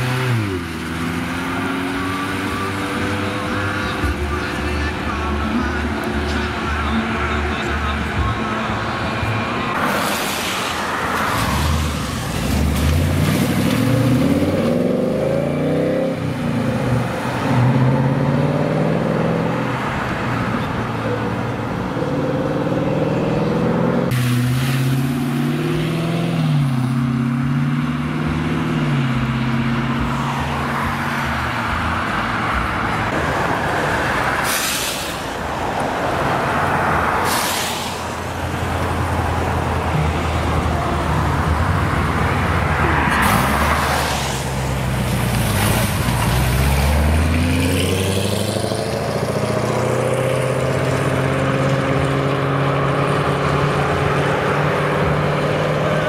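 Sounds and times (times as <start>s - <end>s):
car exhaust and tyre noise: 0.0s - 56.0s
car accelerating through gears: 46.2s - 56.0s.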